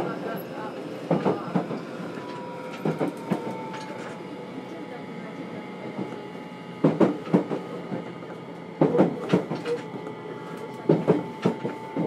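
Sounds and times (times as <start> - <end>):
steady train rumble: 0.0 - 12.0
train wheels knocking over track joints: 6.8 - 7.7, 8.8 - 10.0.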